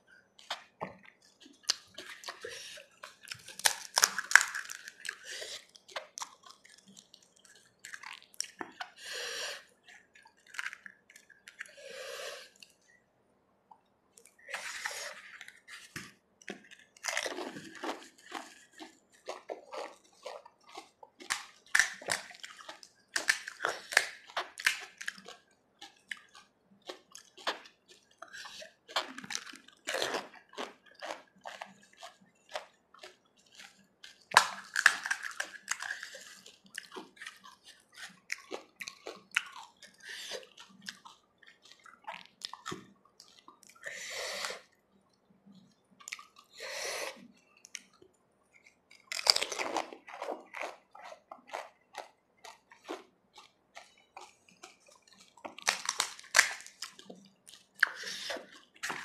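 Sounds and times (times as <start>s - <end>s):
wet chewing: 0.1s - 13.0s, 13.7s - 59.0s
crisp shells crunching: 1.6s - 8.8s, 33.5s - 39.8s, 48.9s - 59.0s.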